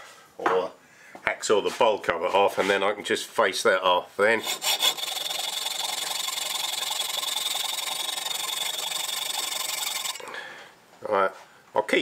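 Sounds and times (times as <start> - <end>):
hacksaw cutting metal: 4.4 - 10.2.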